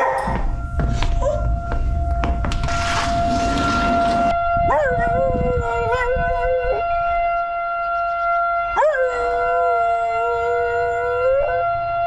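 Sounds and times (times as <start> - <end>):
tornado warning siren: 0.0 - 12.0
dog howling: 4.6 - 11.6.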